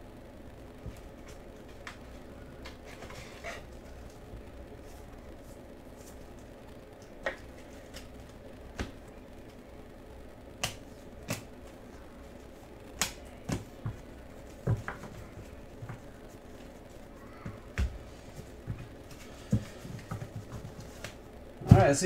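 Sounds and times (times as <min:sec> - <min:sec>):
low steady hum: 0:00.0 - 0:22.0
cards clicking and tapping: 0:10.6 - 0:11.5, 0:13.0 - 0:15.2.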